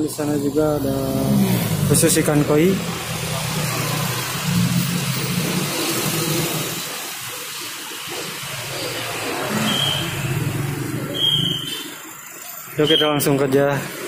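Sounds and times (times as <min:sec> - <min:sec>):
water splashing in aquarium tanks: 0:02.6 - 0:12.6.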